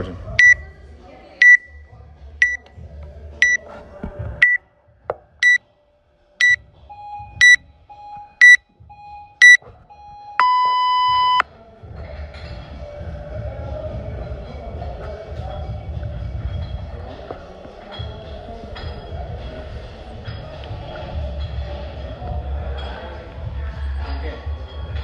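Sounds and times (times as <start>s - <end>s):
fainter lower beep: 0.4s - 0.6s, 1.4s - 2.6s, 6.4s - 11.4s
long timer beep: 0.4s - 0.6s, 1.4s - 1.8s, 6.4s - 11.4s
short high timer beeps: 0.4s - 0.6s, 1.4s - 1.8s, 6.4s - 11.4s.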